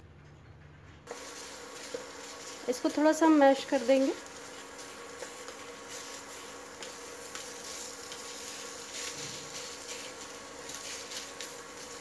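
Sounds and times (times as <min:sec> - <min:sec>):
faint sizzle: 0:01.0 - 0:12.0
wooden spatula scraping a pan: 0:01.1 - 0:12.0.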